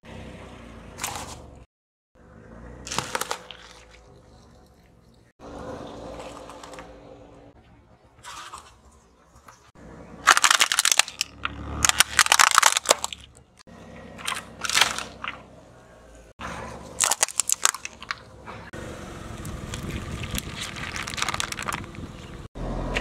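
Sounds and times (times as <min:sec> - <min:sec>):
tyre crushing plastic: 0:02.9 - 0:04.0, 0:10.2 - 0:13.3, 0:14.2 - 0:15.4, 0:16.9 - 0:18.2, 0:19.4 - 0:22.4
plastic cups crackling and bursting: 0:02.9 - 0:05.3, 0:10.2 - 0:13.5, 0:14.2 - 0:15.4, 0:16.9 - 0:18.3, 0:19.4 - 0:22.5.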